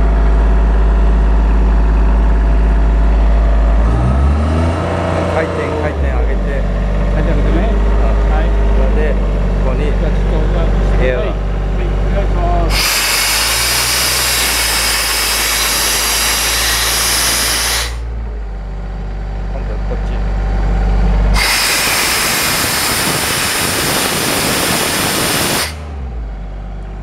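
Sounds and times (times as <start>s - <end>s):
compressor engine humming: 0.0s - 27.0s
compressed air blasting: 12.7s - 18.1s, 21.3s - 25.9s.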